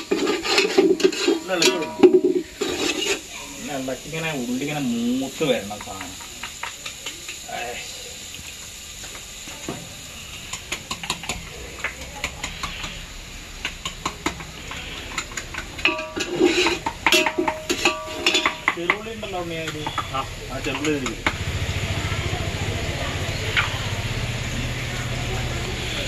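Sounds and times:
spoon scraping metal pan: 0.0 - 3.6, 14.3 - 21.1
aromatics sizzling in oil: 0.0 - 26.0.

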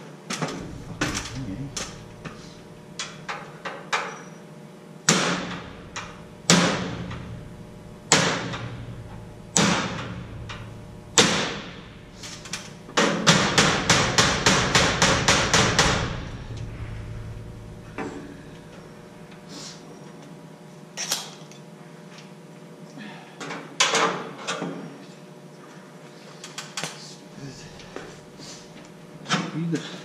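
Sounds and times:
hammer striking metal studs: 12.3 - 16.6.

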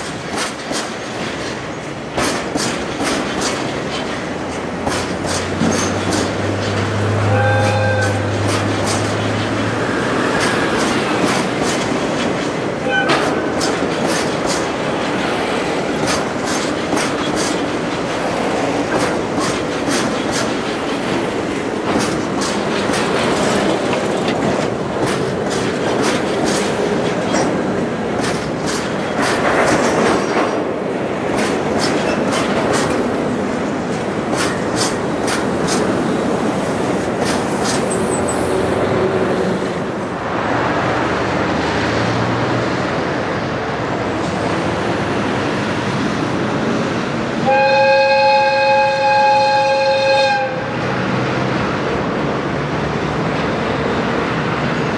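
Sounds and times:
train wheels clicking over rail joints: 0.0 - 40.2
train rumble: 0.0 - 54.9.

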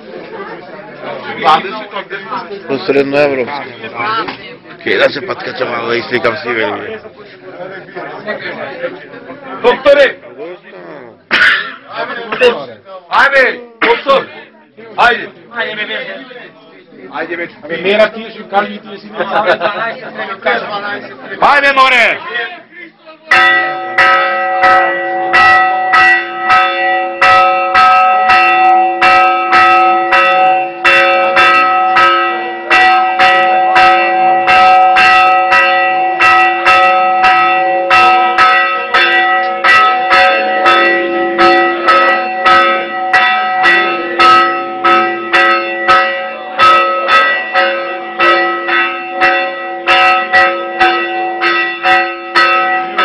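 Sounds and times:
church bells ringing fast: 23.3 - 53.0.

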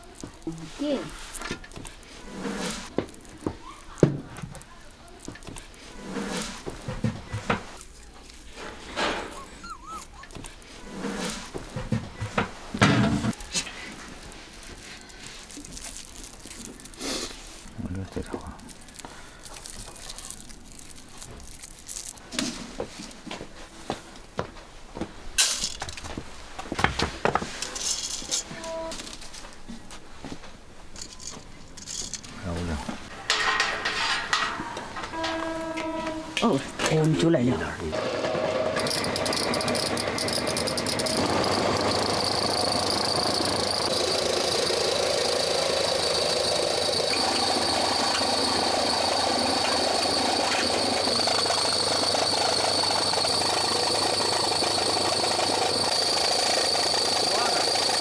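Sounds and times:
rustle of wet grains: 0.0 - 7.0, 13.4 - 24.0
metal clinking against basket: 33.1 - 35.6.

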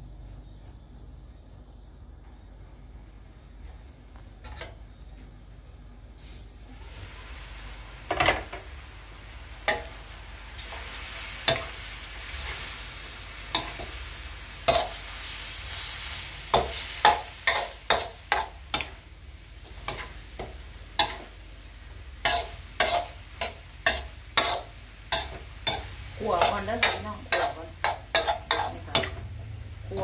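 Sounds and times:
food sizzling: 6.2 - 30.0
spatula scraping metal wok: 13.5 - 19.0, 19.6 - 21.3, 22.2 - 29.3.

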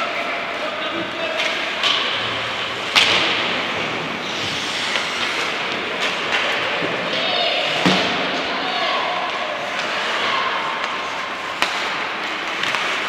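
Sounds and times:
hockey stick and puck knocks: 2.9 - 3.9, 10.8 - 13.0
skates hissing on ice: 4.2 - 5.6.

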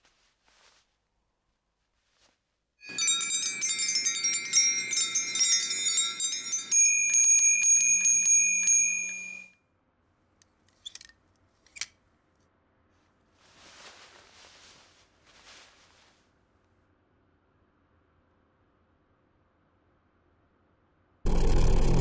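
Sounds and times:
brass bells jangling: 2.8 - 9.5.

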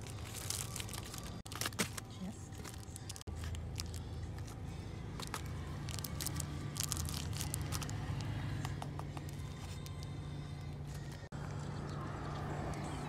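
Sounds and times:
plastic bag crinkling: 0.0 - 4.1, 5.2 - 8.1.

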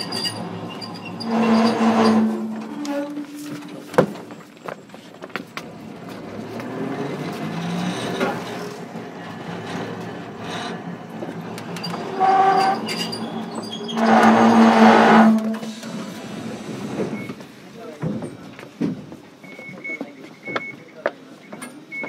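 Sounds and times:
tram wheel squeal: 0.0 - 5.0, 11.6 - 17.4
rumble of wheels and motors: 0.0 - 20.7.

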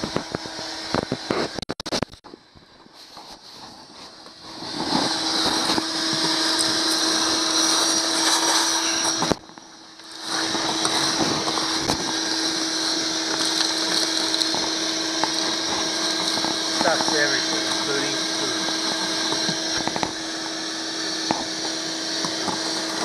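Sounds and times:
shop vacuum running: 0.0 - 23.0.

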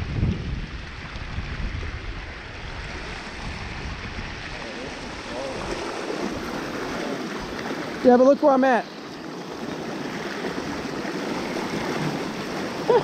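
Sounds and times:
wind buffeting microphone: 0.0 - 8.5
creek water rushing over rocks: 0.0 - 13.0.

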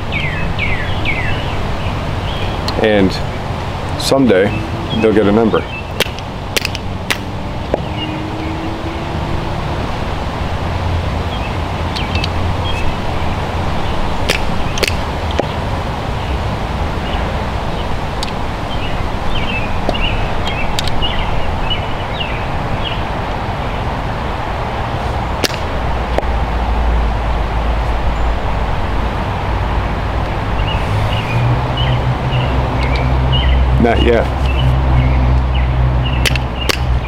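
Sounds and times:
small birds chirping: 0.0 - 9.5, 11.2 - 15.6, 17.0 - 24.0, 29.8 - 37.0
wind rumble on microphone: 0.0 - 37.0
fire piston snap: 6.0 - 7.3, 14.3 - 15.0, 25.4 - 25.7, 36.2 - 36.9.

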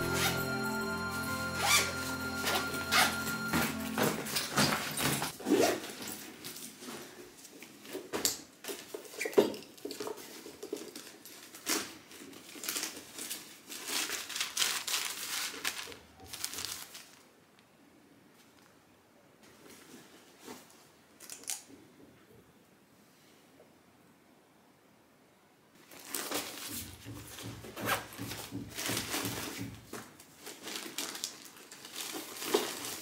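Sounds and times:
plastic packets crinkling: 9.8 - 17.4, 25.8 - 26.8, 30.2 - 33.0.

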